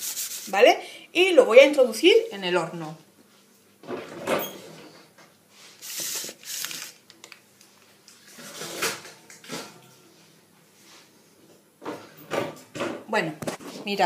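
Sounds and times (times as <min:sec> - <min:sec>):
oven door opening and closing: 0:03.9 - 0:04.8.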